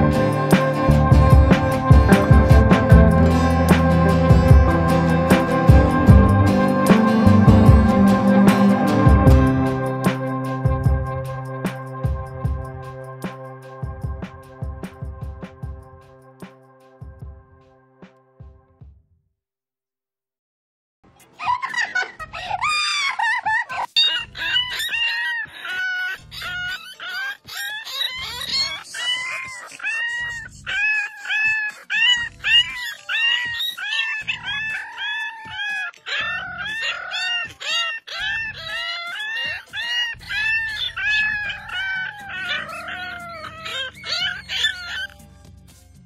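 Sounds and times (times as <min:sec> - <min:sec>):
background music: 0:00.0 - 0:18.6, 0:32.0 - 0:46.0
puppy yapping: 0:21.4 - 0:45.2.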